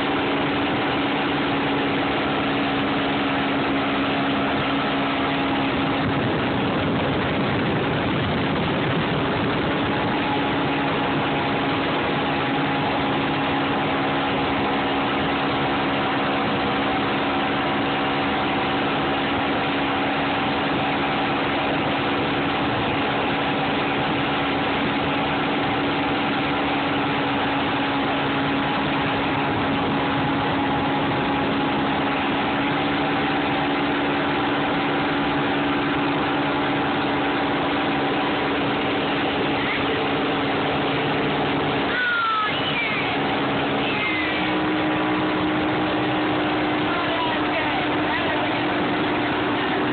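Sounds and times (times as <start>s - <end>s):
churning wake water: 0.0s - 49.9s
outboard motor running: 0.0s - 49.9s.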